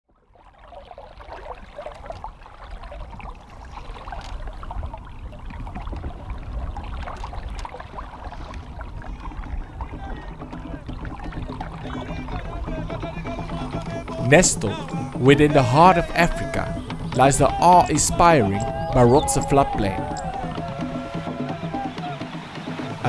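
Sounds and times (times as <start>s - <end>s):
water splashing and lapping: 0.1s - 23.0s.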